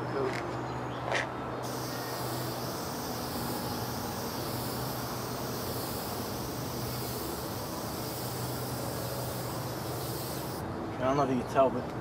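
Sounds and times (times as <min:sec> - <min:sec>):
aerosol can spraying: 0:01.6 - 0:10.6.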